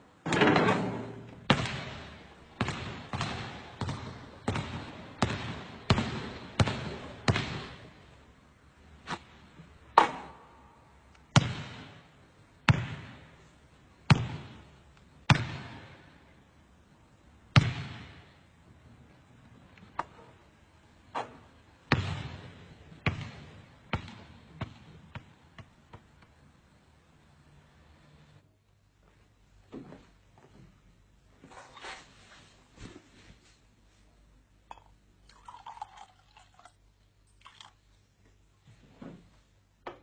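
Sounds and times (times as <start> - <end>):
basketball bouncing: 1.5 - 7.8, 11.3 - 12.0, 12.7 - 13.3, 14.1 - 14.6, 15.3 - 16.0, 17.5 - 18.3, 21.2 - 26.0.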